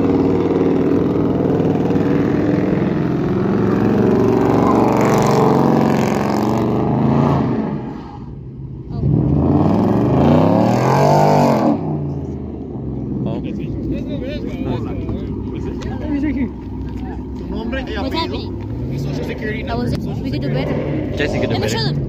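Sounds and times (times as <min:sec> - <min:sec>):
sports car engine revving: 0:00.0 - 0:22.0.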